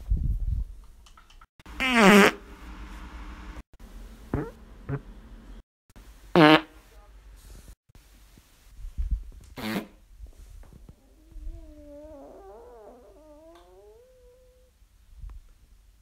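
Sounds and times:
buzzing farts: 1.8 - 2.4, 4.3 - 5.1, 6.4 - 6.7, 9.6 - 10.0.

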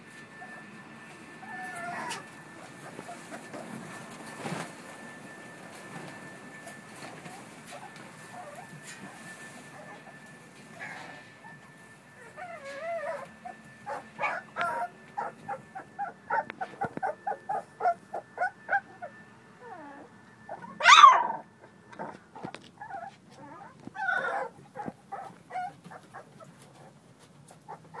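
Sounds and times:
puppies whimpering: 1.4 - 3.7, 7.2 - 28.0.

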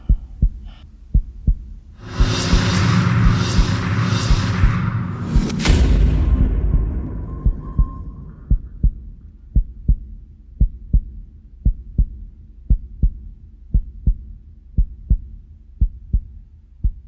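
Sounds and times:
heartbeat thumps: 0.0 - 17.0
loud boom: 2.0 - 9.2.

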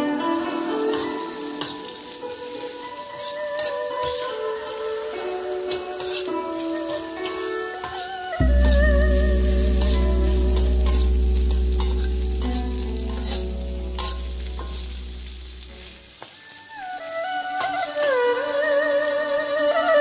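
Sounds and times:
beans sizzling in a wok: 0.0 - 19.6
metal spatula scraping a pan: 0.9 - 16.3
loud low hum: 8.4 - 16.0.

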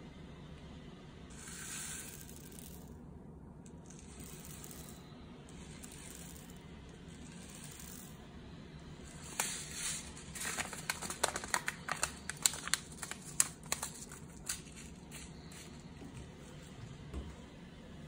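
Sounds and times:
seed packet crinkling: 9.1 - 15.8
seeds clicking on plastic tray: 9.2 - 14.9.

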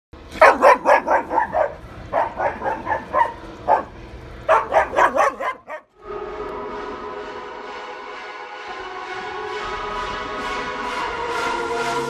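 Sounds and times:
dog barking: 0.3 - 5.9.

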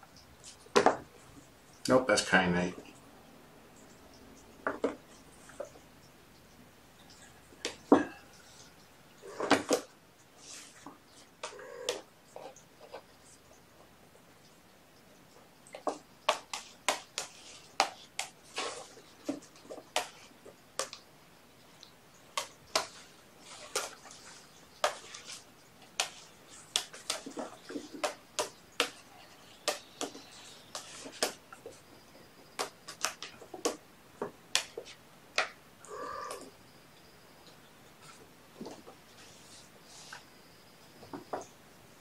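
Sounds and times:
claws and paws clicking and scratching: 3.8 - 36.6.

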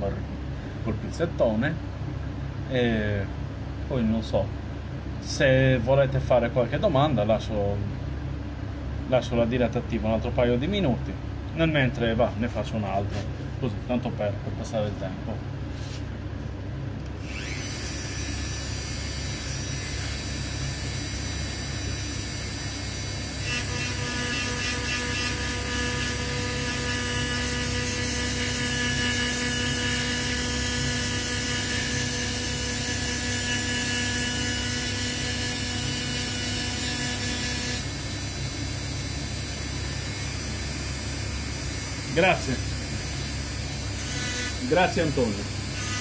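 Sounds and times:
small electric motor hissing: 17.2 - 46.0.

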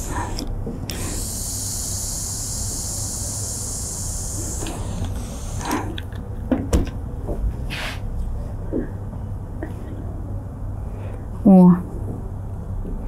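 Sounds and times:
steam iron hissing: 0.0 - 6.0.

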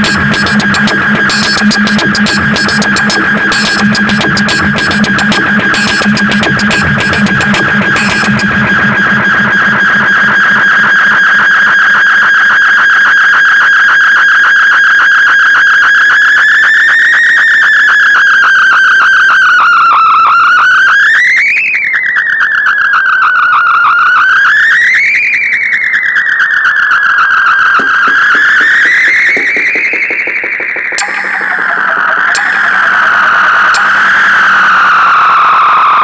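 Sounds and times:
fluttering synthesizer tone: 0.0 - 11.8, 27.8 - 35.3.

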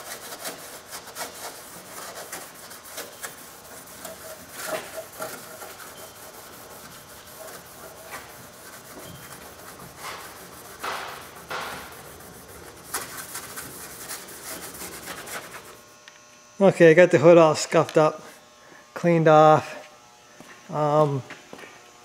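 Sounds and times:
abrasive rubbing on metal: 0.0 - 15.9.

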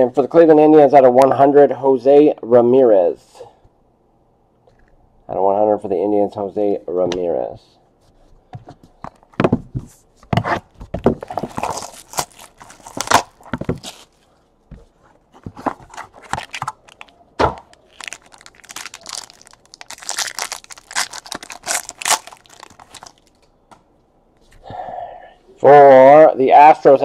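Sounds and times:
cardboard box opening: 11.1 - 14.1
foil pack tearing: 11.2 - 14.2, 17.7 - 23.4.

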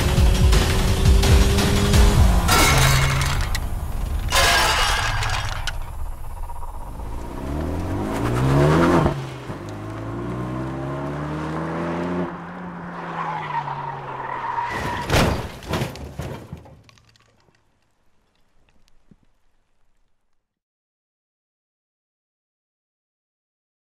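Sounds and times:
car engine revving: 0.0 - 14.3.

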